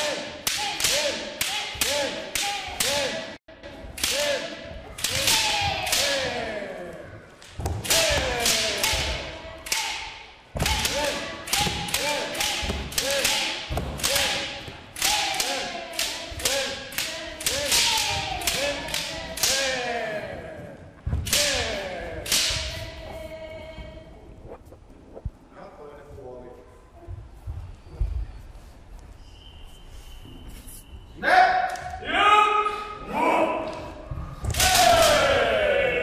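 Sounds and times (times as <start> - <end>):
bamboo swords clacking: 0.0 - 20.0, 21.1 - 23.1.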